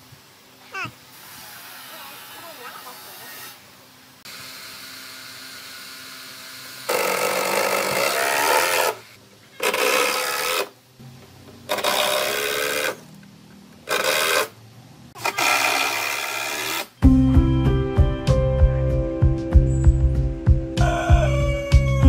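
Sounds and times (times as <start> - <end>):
power drill driving screws: 4.3 - 10.7, 11.7 - 13.0, 13.9 - 14.6, 15.2 - 17.0.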